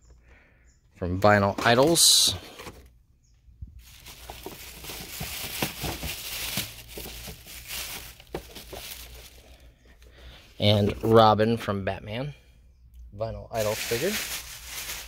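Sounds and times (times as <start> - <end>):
plastic bag crinkling: 3.8 - 9.6, 13.6 - 15.0.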